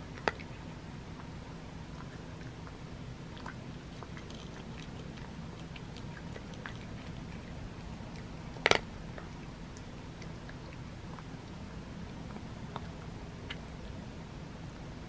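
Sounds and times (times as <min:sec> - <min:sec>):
cat crunching dry kibble: 0:03.4 - 0:09.2.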